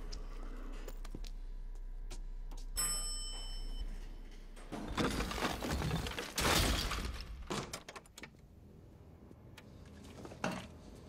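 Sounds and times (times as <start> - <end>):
crumbling stone debris: 4.9 - 7.6.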